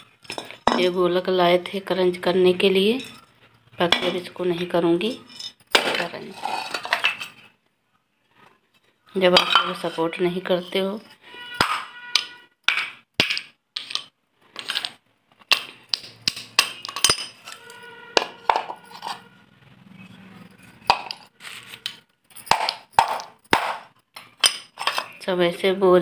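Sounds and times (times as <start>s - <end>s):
clay pot shards clinking: 0.2s - 1.0s, 5.2s - 7.4s, 11.6s - 17.6s.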